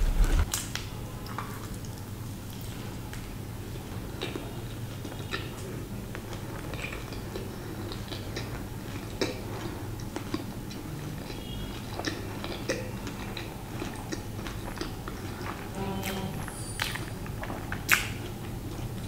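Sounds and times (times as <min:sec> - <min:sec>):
low hum: 0:00.0 - 0:00.5
person chewing food: 0:03.8 - 0:19.0.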